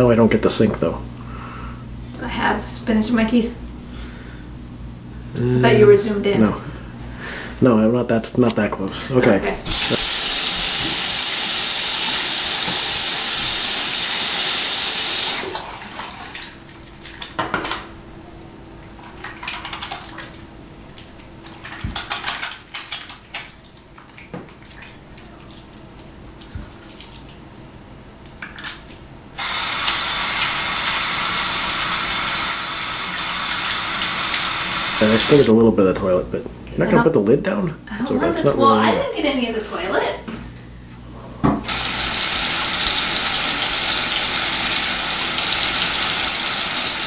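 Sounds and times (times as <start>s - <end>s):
faucet running into a sink: 9.7s - 15.6s, 29.4s - 35.5s, 41.7s - 47.0s
soapy hands rubbing: 18.8s - 27.7s.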